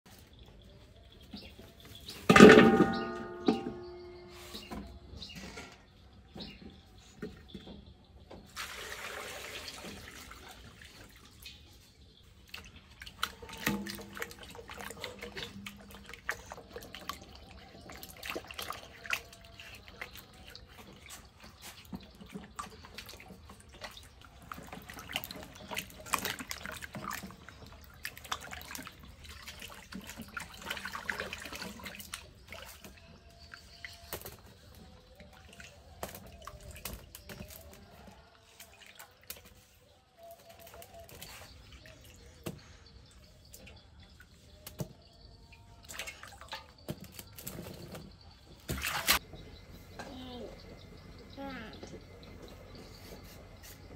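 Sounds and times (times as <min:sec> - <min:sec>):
water sloshing in metal wok: 0:02.2 - 0:04.3, 0:08.4 - 0:42.4
water pouring: 0:08.5 - 0:11.8, 0:12.5 - 0:33.9
water dripping: 0:08.6 - 0:39.8.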